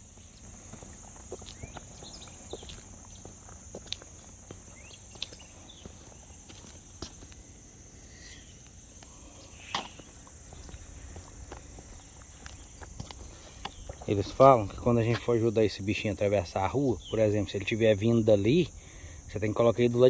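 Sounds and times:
footsteps on concrete: 0:00.0 - 0:07.5, 0:08.6 - 0:15.4
insect chorus: 0:00.0 - 0:20.0.

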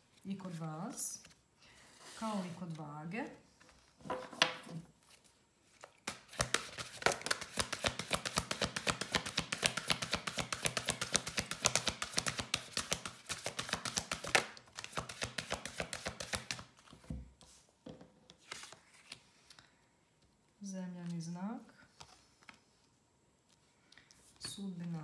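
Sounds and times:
cards being shuffled: 0:05.0 - 0:17.5, 0:18.3 - 0:19.6.

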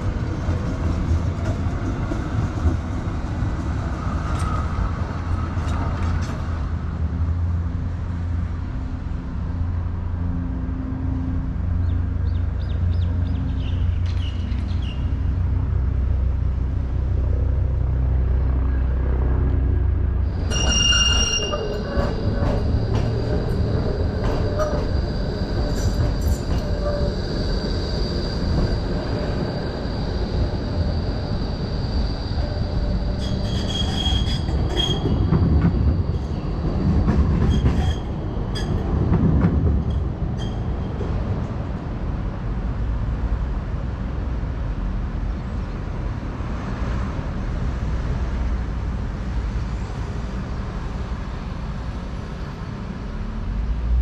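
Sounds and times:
tram wheels squealing: 0:20.2 - 0:41.5.

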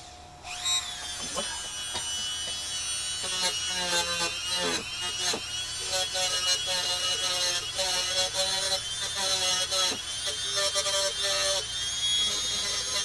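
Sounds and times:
rotary tool whining: 0:00.0 - 0:13.0.

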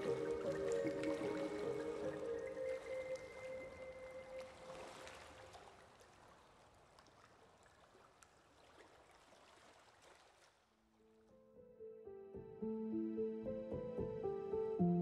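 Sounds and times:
soft music held notes: 0:00.0 - 0:05.3, 0:11.5 - 0:15.0.

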